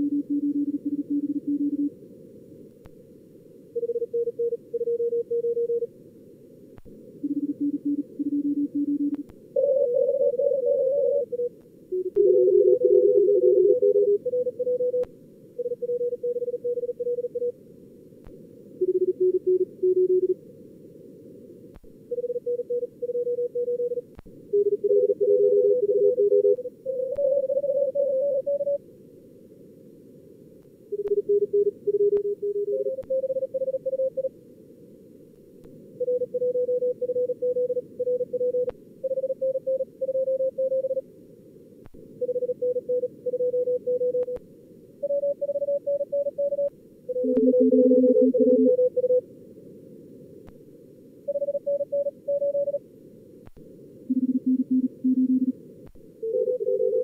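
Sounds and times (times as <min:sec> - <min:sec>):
morse code beeps: 0:42.2 - 0:44.4, 0:45.0 - 0:49.2, 0:51.3 - 0:52.8, 0:54.1 - 0:55.5, 0:56.2 - 0:57.0.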